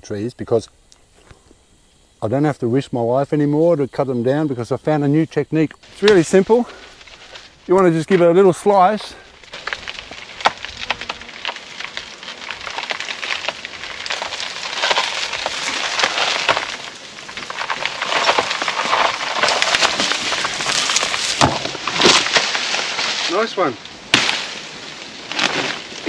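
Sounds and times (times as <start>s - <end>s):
fibrous crackling and snapping: 5.8s - 26.0s
sharp crack: 5.9s - 26.0s
plant trunk splitting and tearing: 6.0s - 26.0s.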